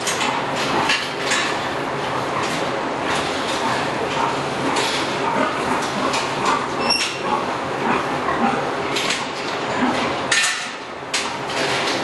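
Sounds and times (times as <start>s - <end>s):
sows grunting and calling: 3.6s - 10.1s.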